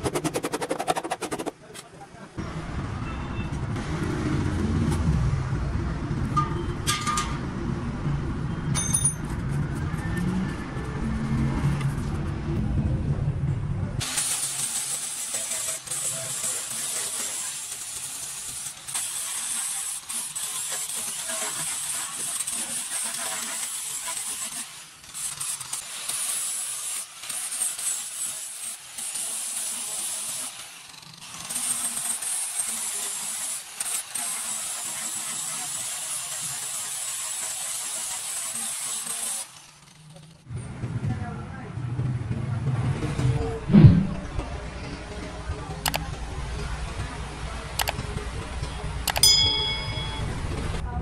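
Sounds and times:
angle grinder grinding metal: 0:00.0 - 0:01.5, 0:14.0 - 0:40.2.

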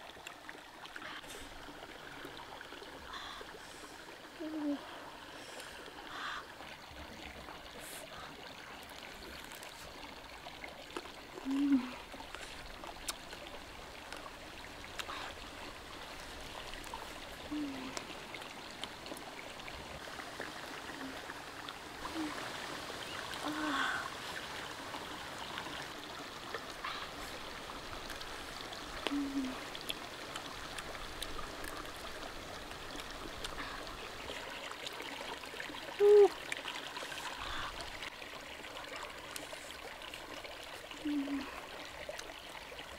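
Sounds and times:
stream running: 0:00.0 - 0:42.9
faint clicks of chewing: 0:10.9 - 0:11.1, 0:12.2 - 0:13.5, 0:14.9 - 0:15.2, 0:29.8 - 0:32.0
short low voice hums: 0:11.4 - 0:12.0, 0:29.0 - 0:29.6, 0:36.0 - 0:36.4, 0:41.0 - 0:41.5.

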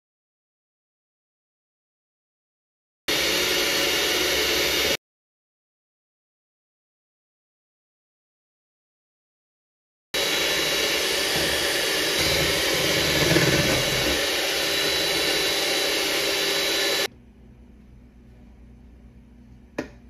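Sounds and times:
electric hand mixer whirring: 0:03.1 - 0:05.0, 0:10.2 - 0:17.1.

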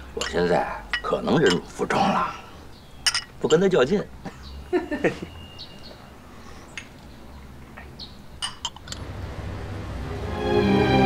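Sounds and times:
bird chirps: 0:02.5 - 0:03.4, 0:04.3 - 0:08.4.

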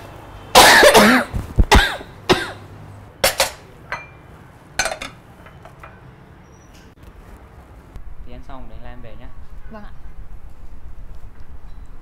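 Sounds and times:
person coughing: 0:00.6 - 0:02.6
ceramic plates and bowls clinking: 0:03.2 - 0:06.0.

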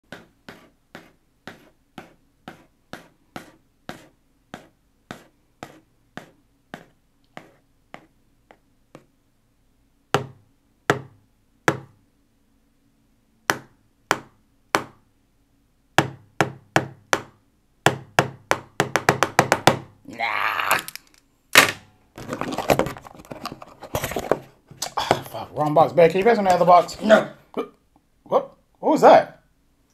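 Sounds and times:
stylus tapping on cardboard box: 0:13.5 - 0:15.0, 0:16.0 - 0:19.9
cardboard scraping and rustling: 0:22.2 - 0:24.6.

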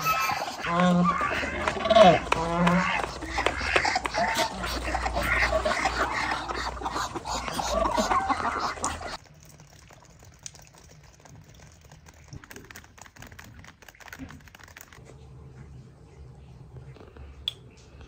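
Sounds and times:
food packaging crinkling: 0:11.6 - 0:15.0.

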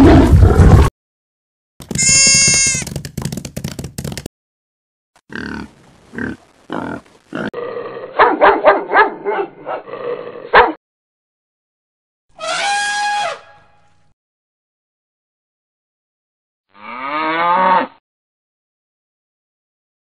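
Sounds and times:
dog barking: 0:08.2 - 0:09.8, 0:10.5 - 0:10.8.

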